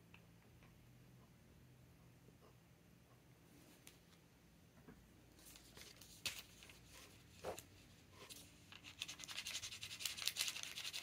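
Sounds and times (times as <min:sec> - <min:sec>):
paper rustling: 0:05.3 - 0:11.0.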